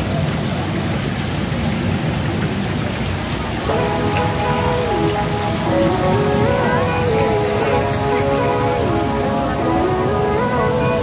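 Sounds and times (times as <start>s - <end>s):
water splashing: 0.0s - 11.0s
background music: 3.6s - 11.0s.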